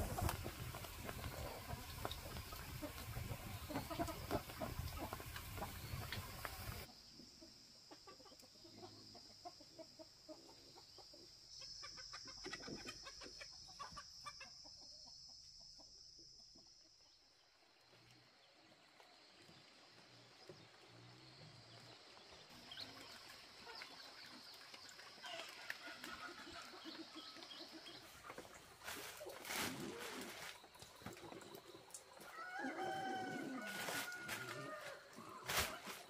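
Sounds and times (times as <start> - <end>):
chickens clucking: 0.0 - 15.9, 25.1 - 36.0.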